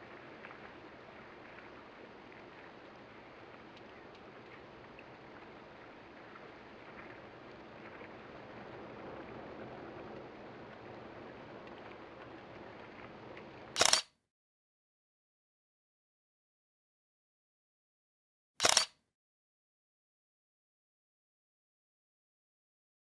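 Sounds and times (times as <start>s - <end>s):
camera shutter clicks: 13.8s - 14.1s, 18.6s - 18.9s.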